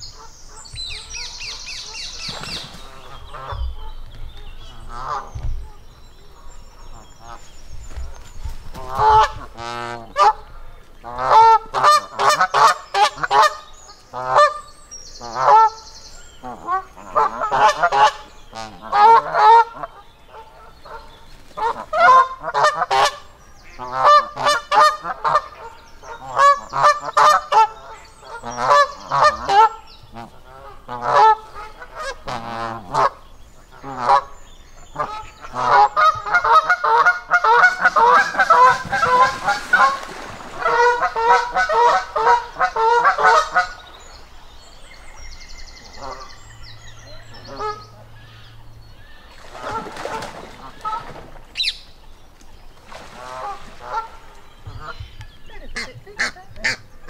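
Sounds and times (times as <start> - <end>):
geese honking: 8.8 - 15.8, 16.4 - 44.0, 45.9 - 48.6, 49.6 - 51.8, 53.2 - 57.0.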